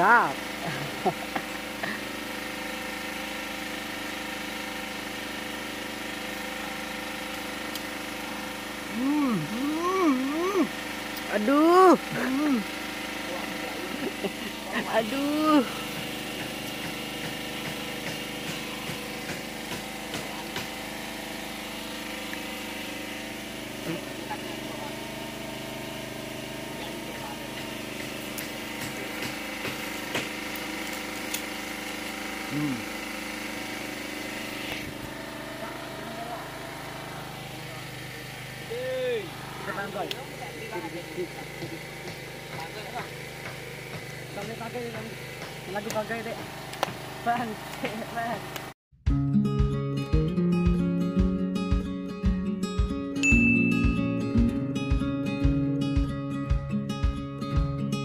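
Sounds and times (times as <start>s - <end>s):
engine humming steadily: 0.0s - 48.8s, 50.2s - 58.0s
sugarcane rind splitting and cracking: 28.0s - 32.2s, 46.7s - 47.0s.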